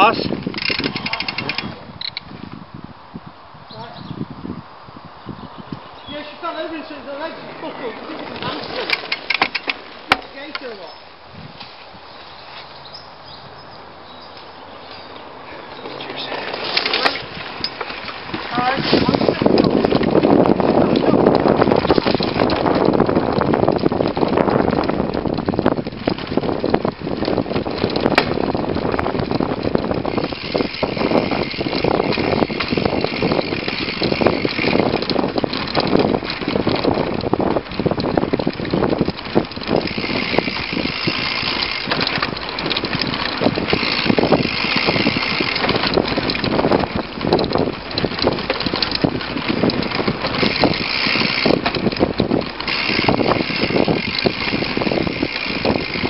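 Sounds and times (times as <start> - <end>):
bike rattling over bumps: 0.0 - 2.8, 5.4 - 56.0
tyre and wind noise: 0.0 - 56.0.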